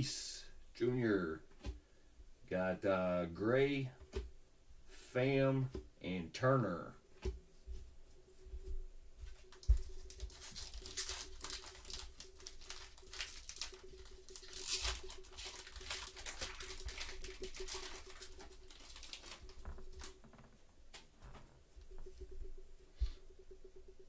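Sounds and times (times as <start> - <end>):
wrapper tearing and crinkling: 9.6 - 20.2
cards rustling and flicking: 9.6 - 21.5.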